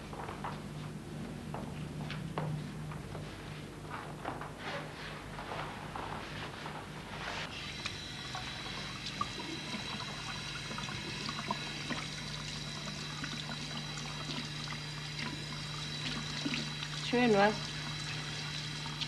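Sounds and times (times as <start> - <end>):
water trickling from a tap: 7.7 - 19.0.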